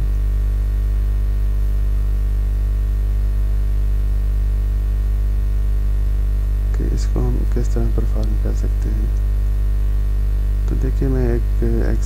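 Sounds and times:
electrical mains hum: 0.0s - 12.0s
static hiss: 5.8s - 12.0s.

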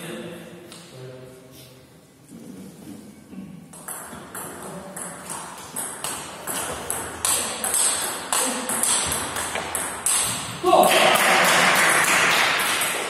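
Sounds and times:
table tennis ball hits: 3.7s - 13.0s.

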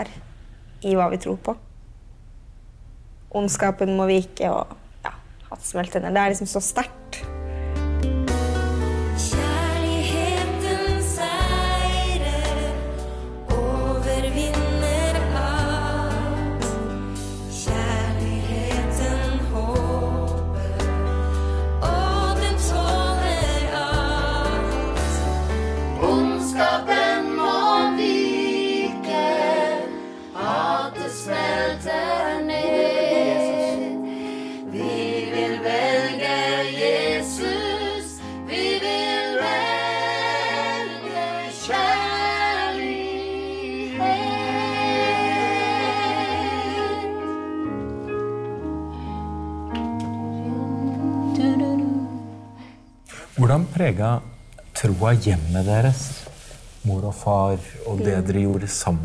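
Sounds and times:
group of people singing: 9.2s - 16.9s, 17.5s - 47.6s, 50.3s - 52.8s.

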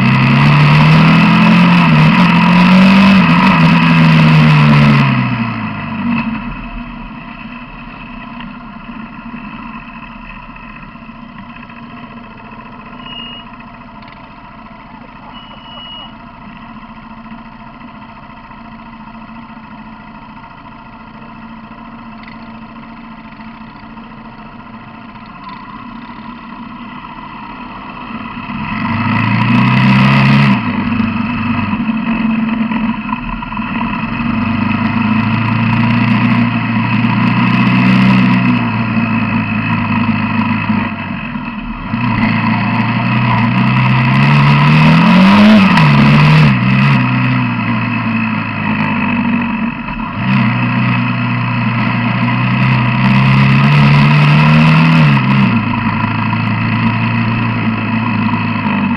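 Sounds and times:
quad bike engine idling and revving: 0.0s - 58.9s
short high beeps: 13.0s - 13.6s, 15.2s - 16.2s.

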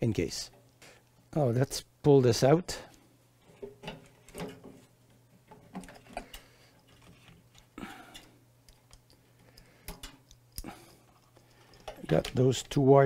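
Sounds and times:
hands handling wiring: 2.9s - 12.9s.

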